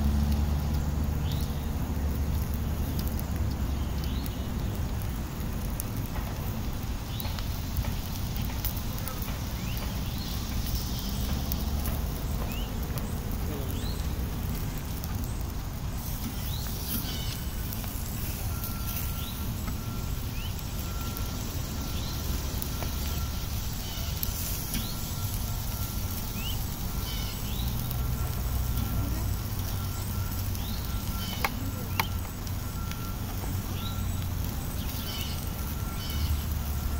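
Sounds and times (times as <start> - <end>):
low outdoor rumble: 0.0 - 36.9.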